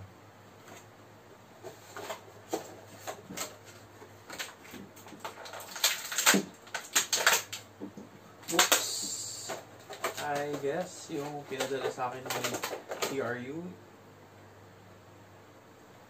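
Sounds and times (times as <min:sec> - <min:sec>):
plastic blister tray crackling: 0:01.6 - 0:13.6.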